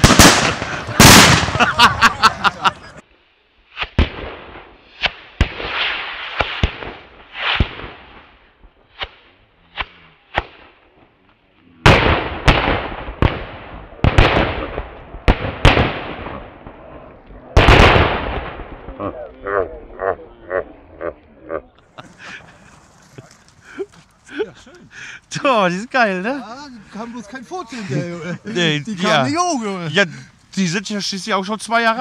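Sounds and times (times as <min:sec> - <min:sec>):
fireworks bangs: 0:00.0 - 0:03.0, 0:03.7 - 0:11.1, 0:11.8 - 0:19.3.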